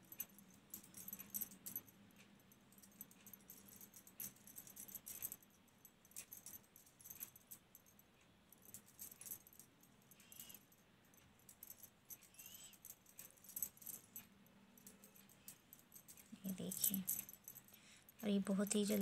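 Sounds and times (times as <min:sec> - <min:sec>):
faint chirps: 0:12.2 - 0:12.9.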